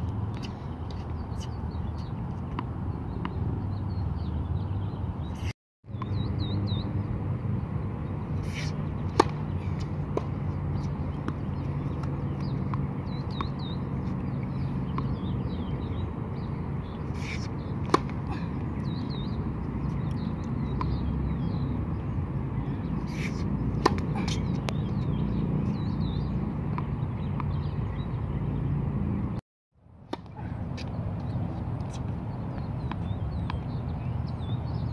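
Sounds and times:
birds chirping: 0.3s - 29.4s, 30.2s - 34.9s
racket striking tennis ball: 8.4s - 15.2s, 17.1s - 19.9s, 23.0s - 27.0s, 30.1s - 31.0s.

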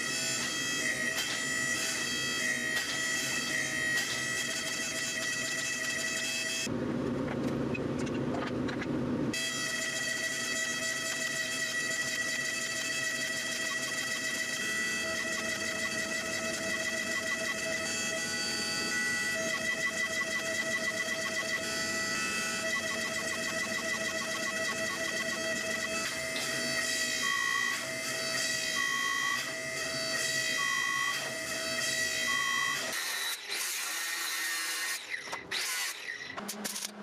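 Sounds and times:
hydraulic press pump whine: 9.4s - 37.0s.

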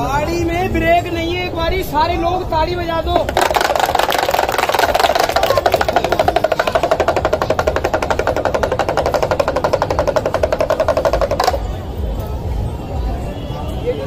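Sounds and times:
pellet drum rapid drumroll: 3.1s - 11.7s.

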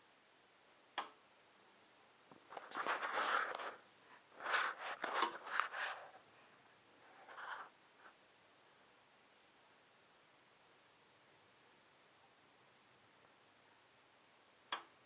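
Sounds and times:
scratchy scraping noise: 2.5s - 6.2s, 7.0s - 8.2s.

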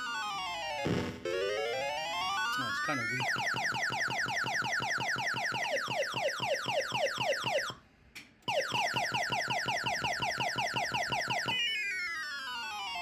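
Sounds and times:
arcade machine falling beeps: 0.8s - 1.4s.

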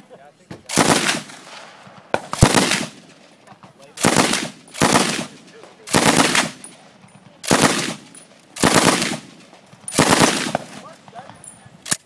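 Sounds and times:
automatic rifle bursts: 4.0s - 6.7s, 7.4s - 10.9s.

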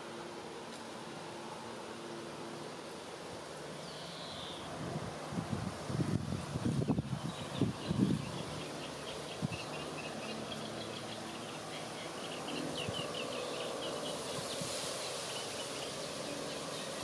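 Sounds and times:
faint outdoor hiss: 0.0s - 17.0s
insects chirping: 6.6s - 17.0s.

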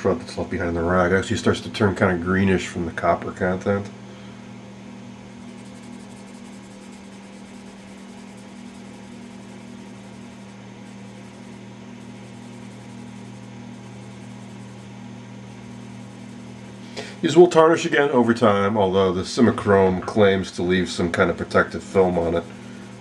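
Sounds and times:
low mechanical hum: 0.0s - 23.0s
room hiss: 2.4s - 23.0s
rag rubbing on brass: 5.4s - 14.9s.

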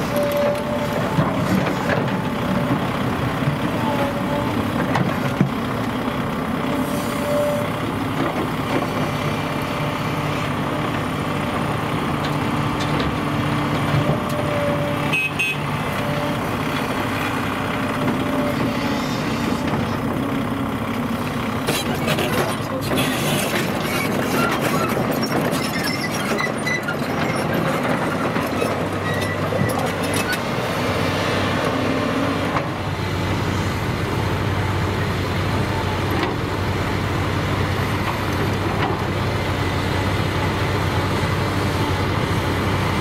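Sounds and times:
excavator bucket clanking and scraping: 0.0s - 6.0s, 11.6s - 15.0s, 17.9s - 20.3s, 21.1s - 32.8s
diesel engines running under load: 0.0s - 43.0s.

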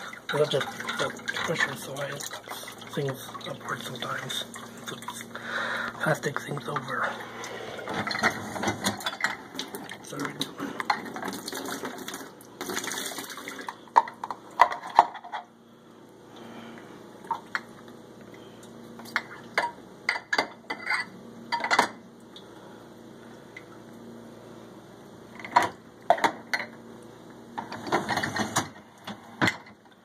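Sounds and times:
glass tumblers and dishes clinking: 0.0s - 5.2s, 7.8s - 12.2s, 19.1s - 22.0s.

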